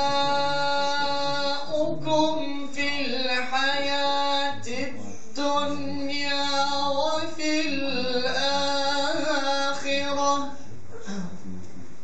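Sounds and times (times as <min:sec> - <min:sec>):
man chanting into a microphone: 0:00.0 - 0:11.6.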